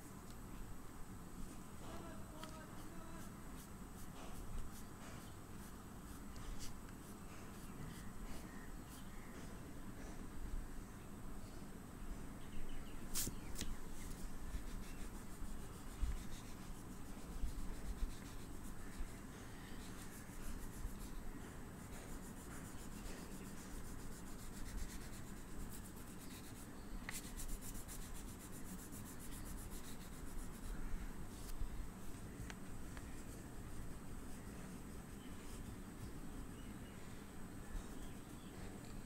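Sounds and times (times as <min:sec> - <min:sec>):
oil pastel scratching on paper: 0:02.8 - 0:08.6, 0:13.1 - 0:31.6.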